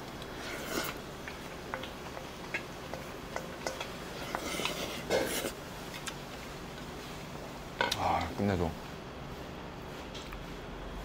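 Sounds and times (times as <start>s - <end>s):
utensils clicking against dishes: 1.7s - 5.5s.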